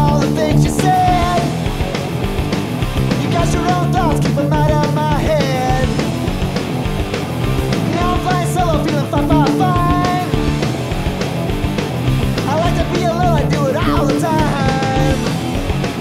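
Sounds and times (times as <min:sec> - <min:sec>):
punk rock band playing: 0:00.0 - 0:16.0
bending melodic lead line: 0:07.4 - 0:11.2, 0:12.1 - 0:15.6.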